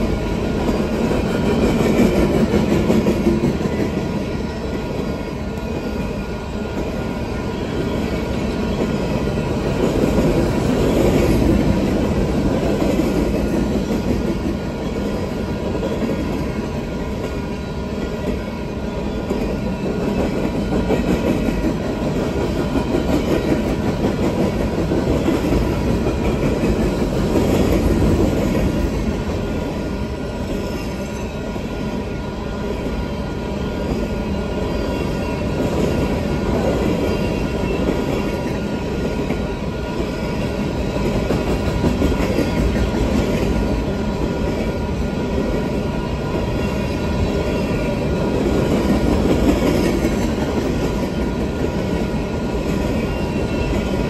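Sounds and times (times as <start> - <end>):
freight train wheels on rails: 0.0 - 54.0.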